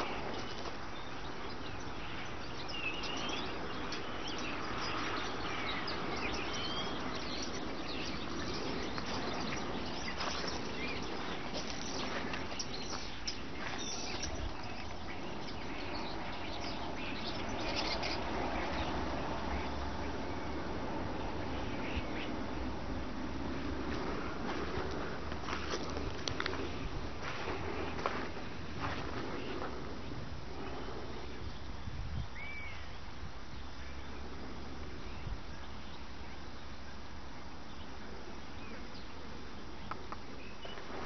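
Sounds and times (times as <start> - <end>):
bird chirps: 0.0 - 20.6, 29.3 - 34.2
steady background hiss: 0.0 - 41.0.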